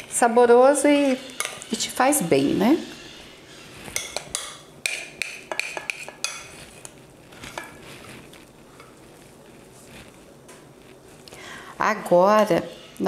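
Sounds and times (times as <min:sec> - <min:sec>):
metal spoon scraping glass bowl: 0:00.0 - 0:09.0.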